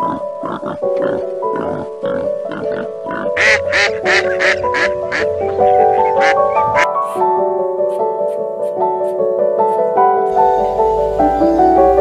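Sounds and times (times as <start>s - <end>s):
pig grunting: 0.0s - 4.6s
simple melody background music: 0.0s - 12.0s.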